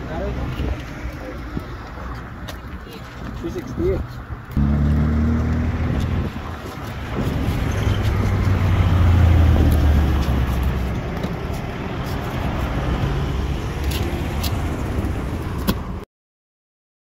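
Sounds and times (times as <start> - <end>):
road traffic: 0.0 - 16.0
vehicle passing close: 4.5 - 11.0.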